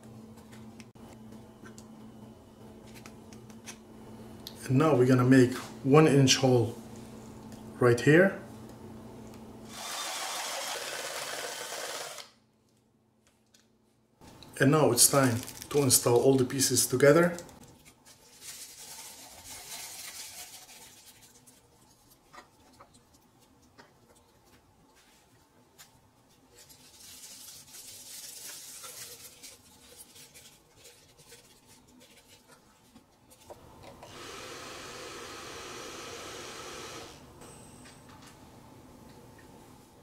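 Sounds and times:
foil insulation crinkling: 15.1 - 16.3, 17.7 - 21.7, 26.6 - 32.5.

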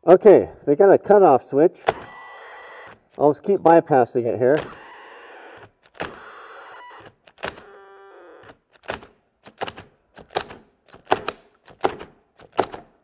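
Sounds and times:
sharp drill clunks: 1.8 - 3.2, 4.5 - 9.1
drill motors at stall: 1.8 - 3.4, 4.6 - 9.0.

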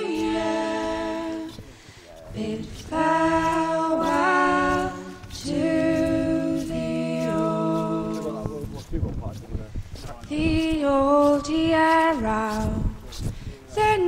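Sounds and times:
a cappella folk singing: 0.0 - 8.8, 10.3 - 14.0.

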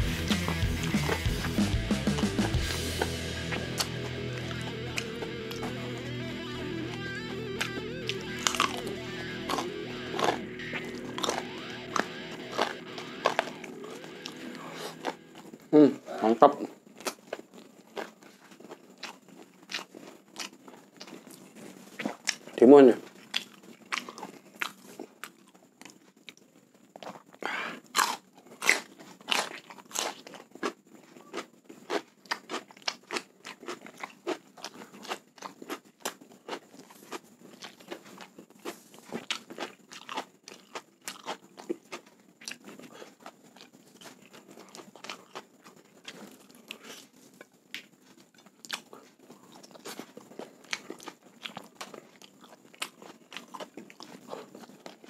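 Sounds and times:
crunching bites of cucumber: 27.9 - 45.4.

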